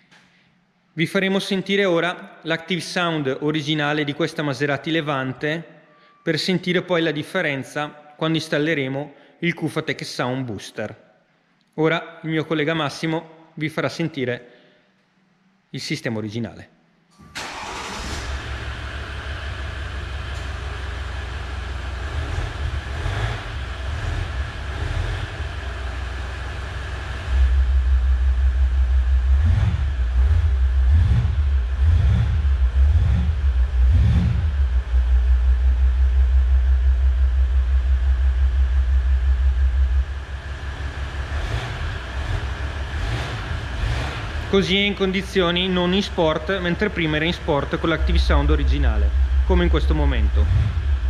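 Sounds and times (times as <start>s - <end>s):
car engine revving: 17.4s - 51.0s
diesel car engine idling: 17.4s - 51.0s.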